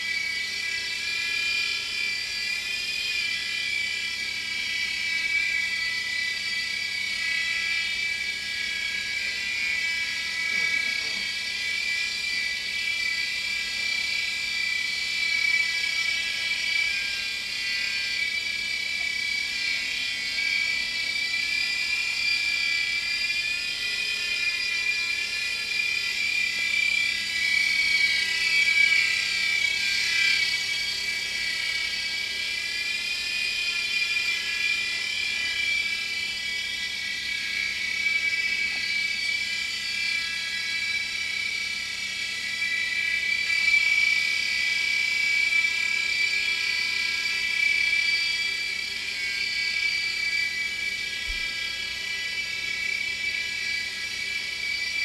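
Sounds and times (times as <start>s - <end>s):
toy helicopter motor whining: 0.0s - 55.0s.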